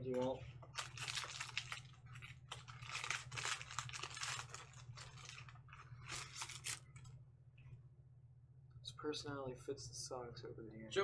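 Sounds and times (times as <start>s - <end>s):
foil wrapper tearing and crinkling: 0.7s - 7.0s.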